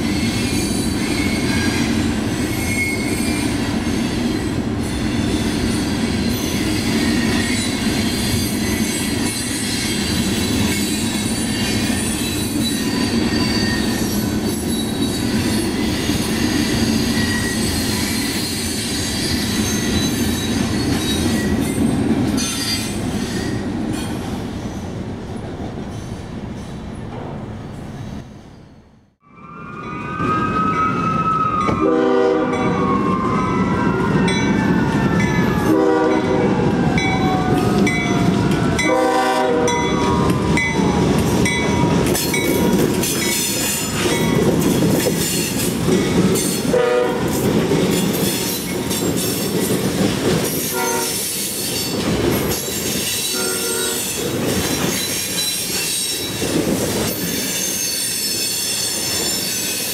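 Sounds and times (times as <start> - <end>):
wheel squeal: 0.0 - 21.8, 57.1 - 59.9
freight train rumble: 0.0 - 29.2, 29.8 - 59.9
rising and falling wail: 29.2 - 38.9
train horn blasts: 31.7 - 33.3, 35.5 - 37.9, 38.8 - 40.0, 46.7 - 47.3, 50.7 - 51.3, 53.3 - 54.2.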